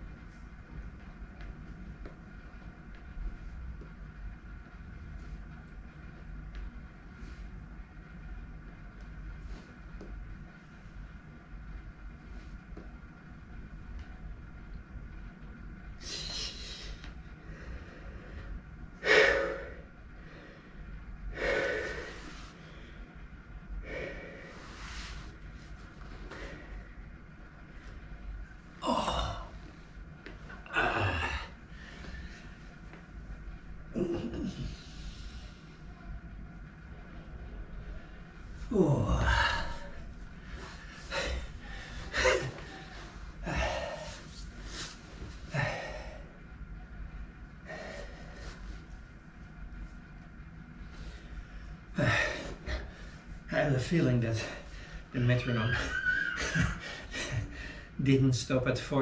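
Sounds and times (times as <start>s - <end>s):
man breathing hard: 16.0s - 23.1s, 23.8s - 25.4s, 30.6s - 32.7s, 38.6s - 46.4s, 47.6s - 48.8s
man groaning: 28.8s - 29.6s, 30.6s - 31.6s, 33.9s - 34.8s, 38.7s - 40.0s, 41.1s - 44.2s, 52.0s - 52.9s.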